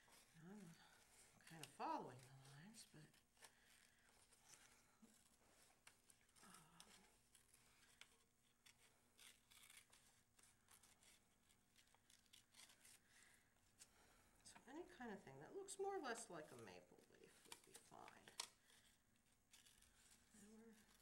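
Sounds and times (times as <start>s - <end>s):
scissors snipping paper: 5.8s - 13.3s, 16.1s - 21.0s.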